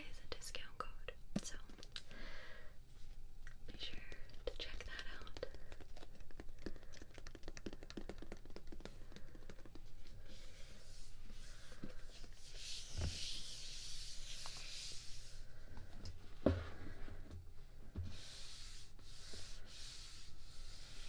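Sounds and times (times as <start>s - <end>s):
soft hissing rub: 2.9s - 16.0s, 17.9s - 21.0s.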